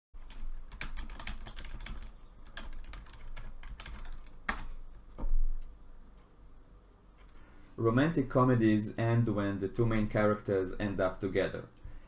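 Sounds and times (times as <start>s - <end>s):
typing on a keyboard: 0.2s - 4.8s.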